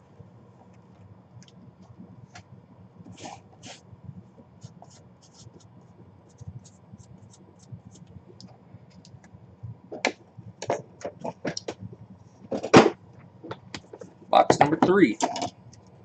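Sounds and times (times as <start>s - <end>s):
marker scratching on cardboard: 4.6s - 8.0s.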